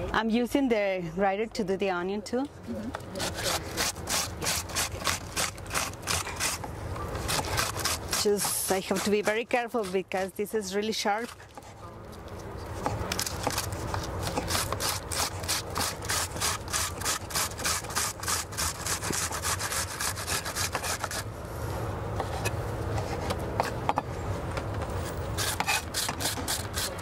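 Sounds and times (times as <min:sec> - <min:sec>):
onion rasping on metal grater: 0:03.2 - 0:06.6, 0:07.2 - 0:11.4, 0:12.9 - 0:21.3, 0:25.3 - 0:27.0.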